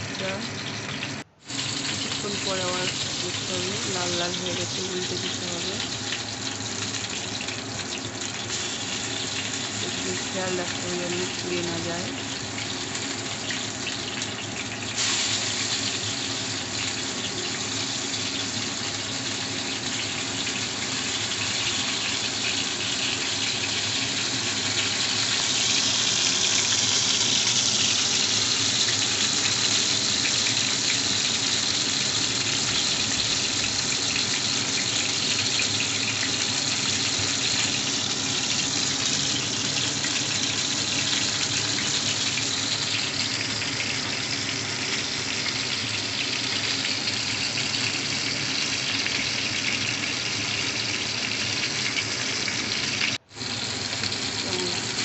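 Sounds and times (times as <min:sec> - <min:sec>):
fish frying in oil: 0:00.0 - 0:55.0.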